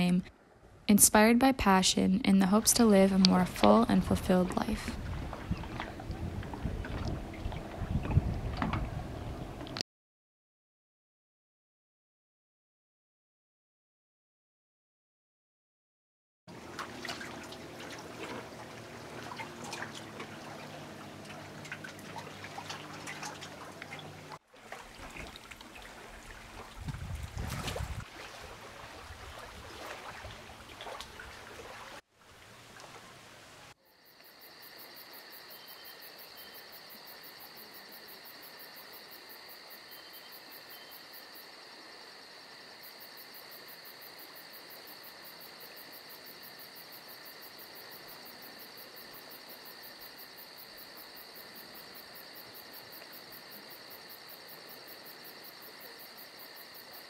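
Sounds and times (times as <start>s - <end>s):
wind buffeting microphone: 3.3s - 9.8s, 26.2s - 28.1s
wind rustling through leaves: 4.0s - 9.7s, 17.4s - 33.8s
insects trilling: 33.8s - 57.0s.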